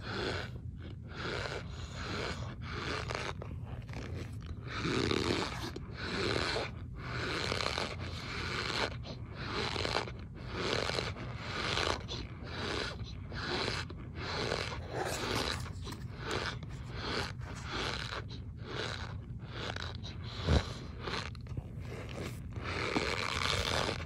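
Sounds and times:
spoon crunching cornstarch: 9.6s - 24.0s.

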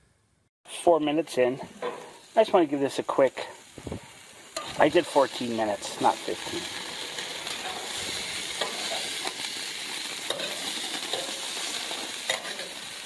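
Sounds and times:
patties sizzling on a grill: 0.7s - 13.0s
metal spatula scraping grill grates: 1.8s - 2.6s, 3.5s - 13.0s.

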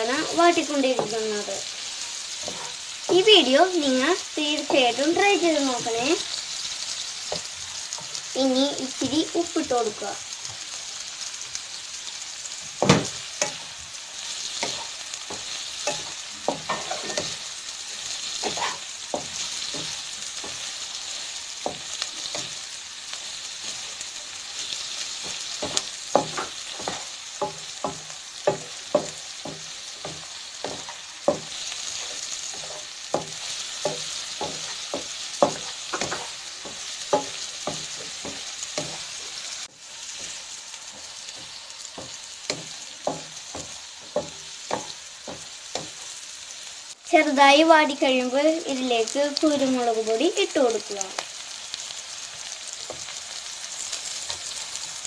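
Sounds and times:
onions sizzling in oil: 0.0s - 55.0s
wooden spatula tapping pan: 0.1s - 3.3s, 12.8s - 17.4s, 24.6s - 39.5s, 40.1s - 46.2s.

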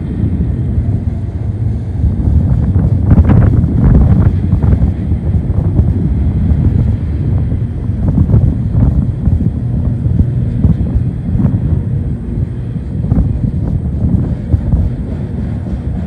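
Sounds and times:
train wheels rumbling on rails: 0.0s - 16.0s
wind buffeting microphone: 0.0s - 16.0s.

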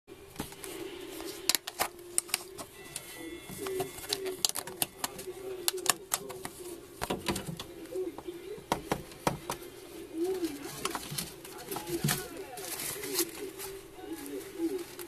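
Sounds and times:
lizard feeding clicks and crackles: 0.5s - 8.0s.

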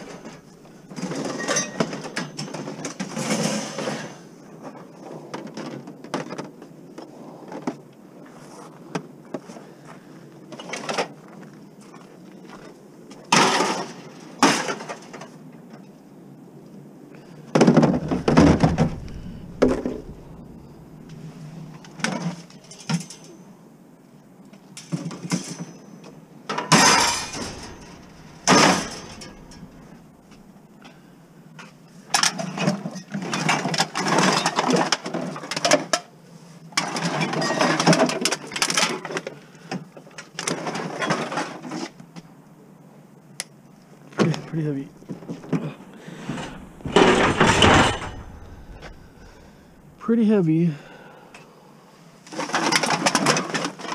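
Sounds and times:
scrap metal clanking and rattling: 0.0s - 4.2s, 17.6s - 23.4s, 26.5s - 30.6s, 45.0s - 50.1s.

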